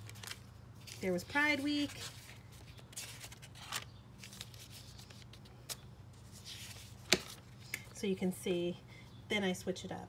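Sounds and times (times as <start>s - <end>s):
paper pages rustling: 0.0s - 7.8s.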